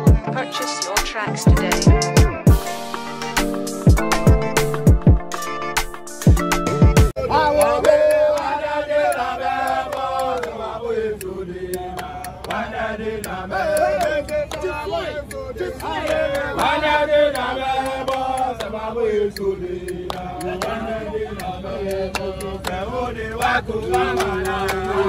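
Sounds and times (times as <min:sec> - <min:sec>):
men chanting together: 0:07.2 - 0:25.0
sharp clicks or claps: 0:13.2 - 0:15.4, 0:16.0 - 0:18.7, 0:19.3 - 0:22.8.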